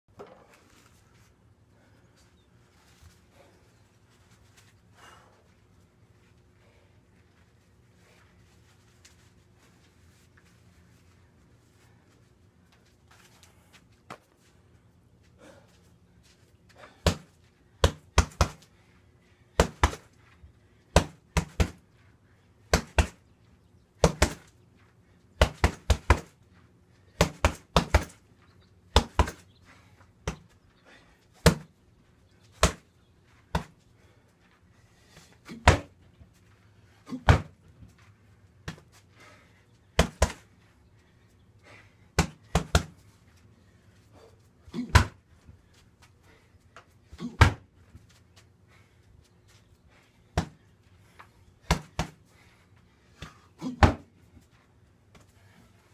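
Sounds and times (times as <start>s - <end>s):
punches smacking heavy bag: 19.6s - 20.0s, 27.2s - 28.2s, 37.2s - 37.6s, 53.6s - 54.1s.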